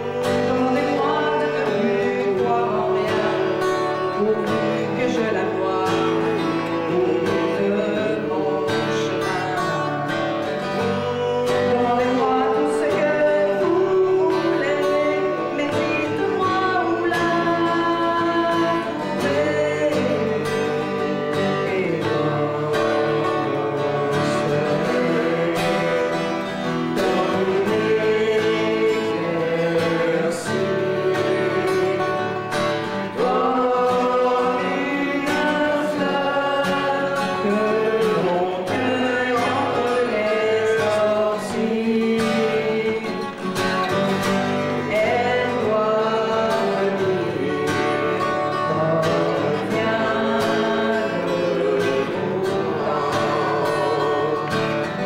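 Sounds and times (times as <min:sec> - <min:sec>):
strummed acoustic guitar: 0:00.0 - 0:55.0
woman singing: 0:10.9 - 0:26.0.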